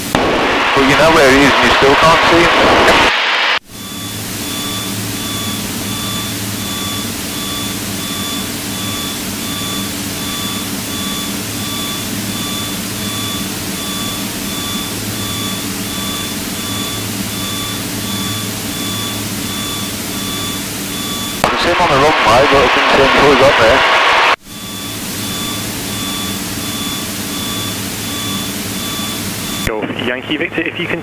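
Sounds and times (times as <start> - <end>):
piston engine and propeller droning: 3.7 - 21.6, 24.5 - 30.0
regular electronic beep: 3.7 - 30.4.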